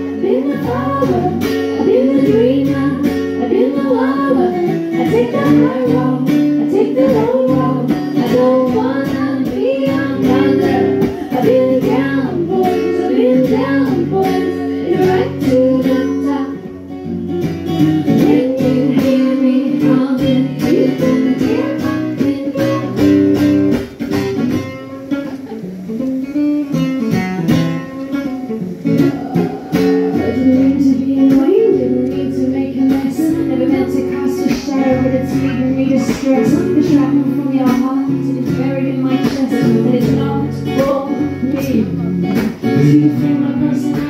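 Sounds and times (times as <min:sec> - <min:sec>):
woman singing: 0:00.0 - 0:25.2, 0:27.7 - 0:44.0
strummed acoustic guitar: 0:00.0 - 0:44.0.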